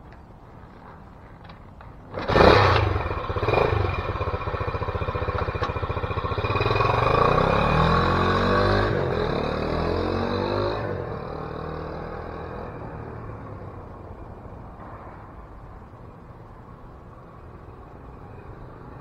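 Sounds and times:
motorcycle engine starting and revving: 2.1s - 13.8s.

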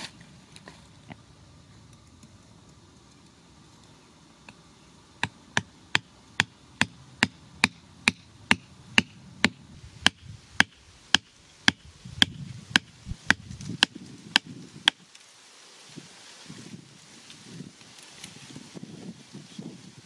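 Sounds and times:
wooden stake being pounded: 5.2s - 15.0s.

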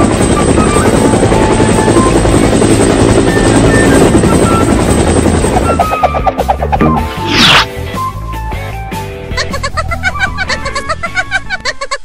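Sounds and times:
helicopter rotor chopping: 0.0s - 7.8s
light background music: 0.0s - 12.0s.

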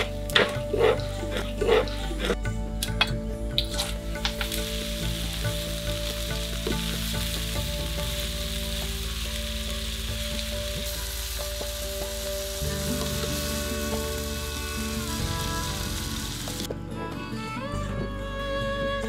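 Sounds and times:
onions sizzling in hot oil: 4.2s - 16.7s.

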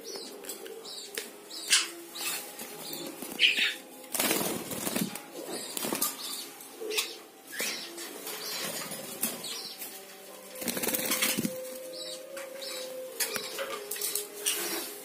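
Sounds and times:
birds fluttering against wire cage: 2.2s - 6.4s, 7.6s - 11.8s.

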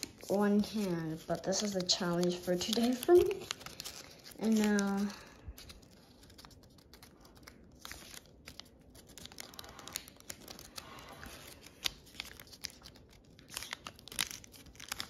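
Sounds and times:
paper crinkling while folded: 0.0s - 15.0s.

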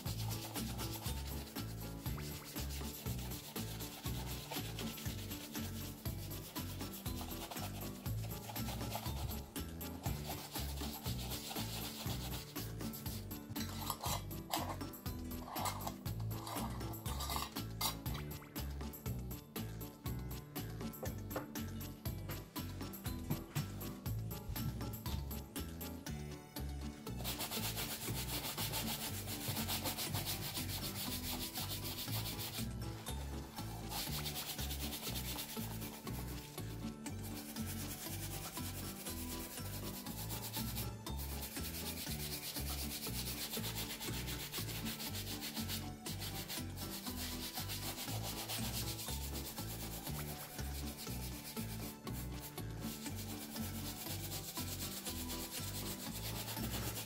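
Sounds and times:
shoe brush scrubbing leather: 0.0s - 13.2s, 27.2s - 32.7s, 33.6s - 57.0s.

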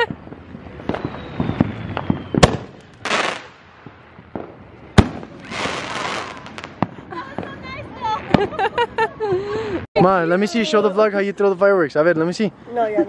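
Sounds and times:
faint firework pops: 0.0s - 7.5s
firework bangs: 0.0s - 9.0s.

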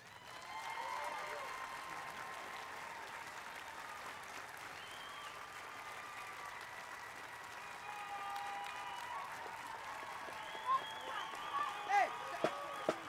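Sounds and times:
audience applause: 0.0s - 13.0s
voices and whistles: 4.8s - 5.6s, 7.5s - 13.0s.

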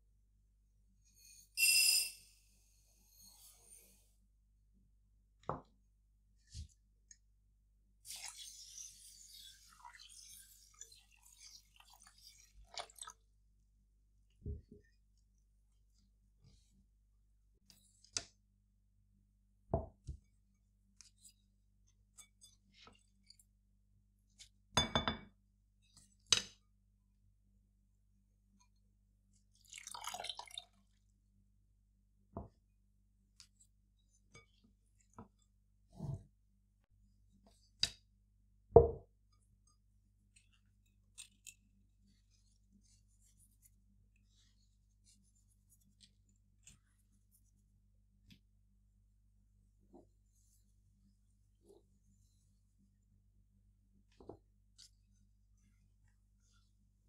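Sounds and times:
glass bowl set down on wood: 24.8s - 25.3s, 38.8s - 39.1s
wooden spoon knocking glass bowl: 24.8s - 25.3s, 38.8s - 39.1s.

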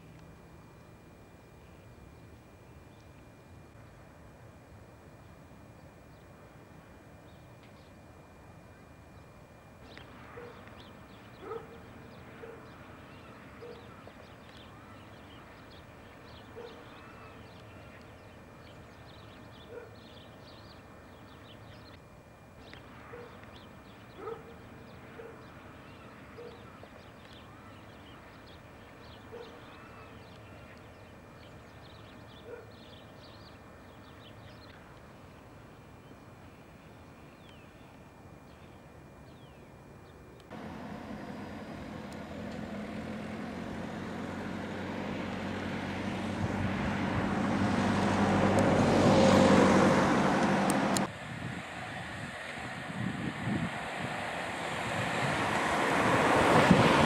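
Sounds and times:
dog barking: 10.3s - 10.7s, 11.4s - 12.7s, 13.6s - 13.9s, 16.5s - 16.9s, 19.7s - 20.0s, 23.0s - 23.4s, 24.2s - 24.6s, 25.2s - 25.4s, 26.4s - 26.6s, 29.3s - 29.6s, 32.4s - 32.8s.

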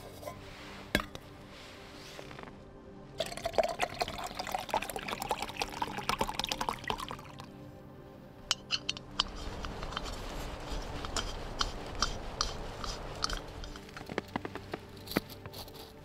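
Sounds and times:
crunching and crackling clicks: 8.6s - 16.0s.

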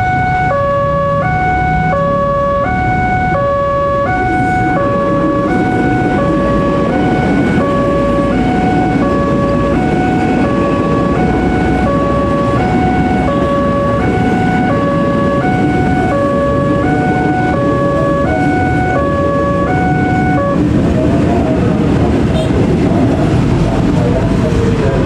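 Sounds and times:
level-crossing alarm two-tone: 0.0s - 20.6s
passing electric train rumble: 0.0s - 25.0s.

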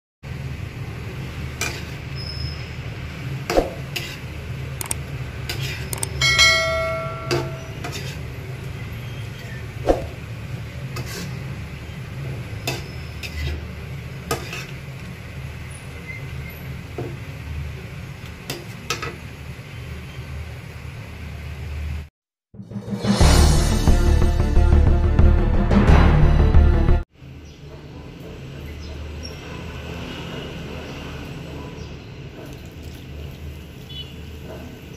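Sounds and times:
metal spatula scraping wok: 1.6s - 2.6s, 7.4s - 8.4s, 10.8s - 11.5s, 12.6s - 14.8s
clicks: 6.0s - 6.2s
bell-like clang: 6.2s - 7.8s.

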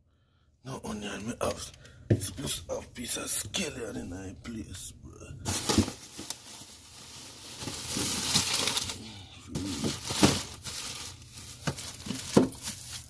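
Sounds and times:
plastic bags crinkling: 5.5s - 13.0s.

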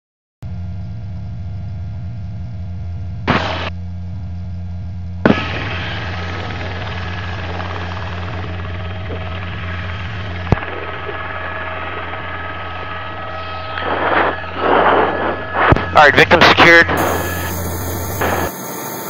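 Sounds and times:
helicopter rotor drone: 0.5s - 19.0s
hiss: 17.0s - 19.0s.

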